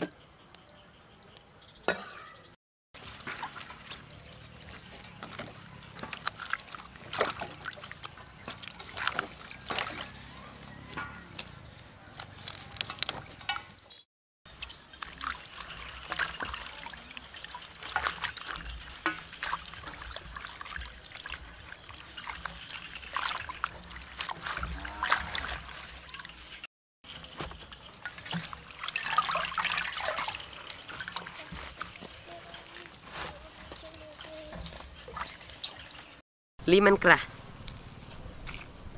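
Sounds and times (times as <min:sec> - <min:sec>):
water splashing in steel basin: 0:03.0 - 0:11.7, 0:14.5 - 0:36.2.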